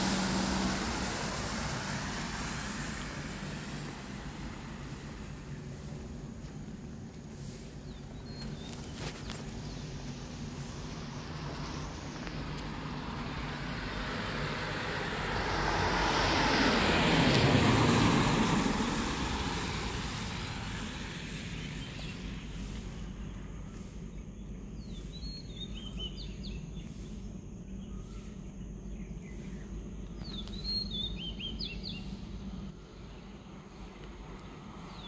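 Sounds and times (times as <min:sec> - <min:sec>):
vehicle passing by: 0:00.0 - 0:23.2, 0:30.3 - 0:35.0
bird chirps: 0:23.7 - 0:32.4.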